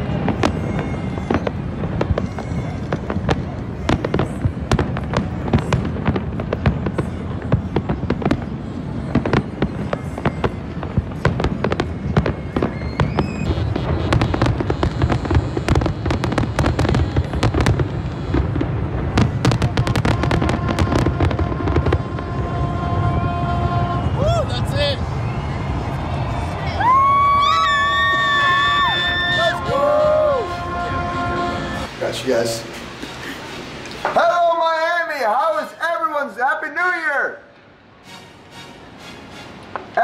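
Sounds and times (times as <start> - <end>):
fireworks bangs and crackles: 0.0 - 35.7, 39.2 - 40.0.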